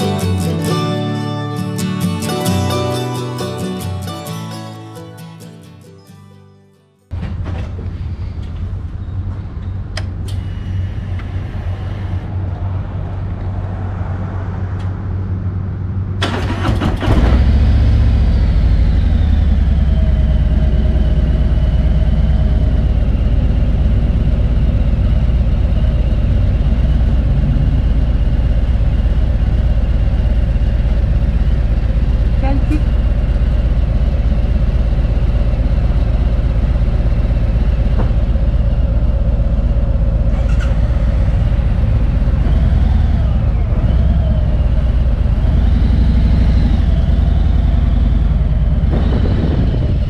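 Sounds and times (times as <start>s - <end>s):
short rattling burst: 48.9s - 50.0s.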